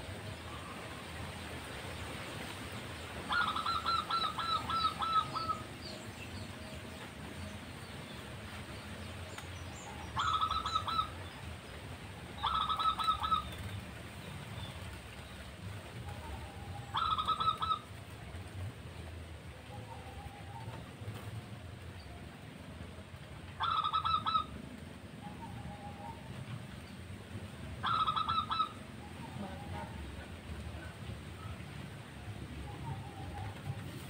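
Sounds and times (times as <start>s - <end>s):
dove cooing: 3.3s - 5.7s, 10.2s - 11.2s, 12.4s - 13.7s, 16.1s - 18.0s, 23.6s - 24.6s, 27.8s - 31.5s.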